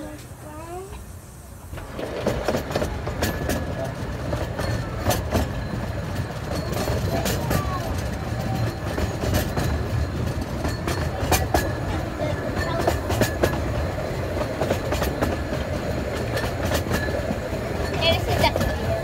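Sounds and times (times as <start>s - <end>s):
railway carriage rumble: 0.0s - 19.0s
wheels clicking over rail joints: 1.7s - 19.0s.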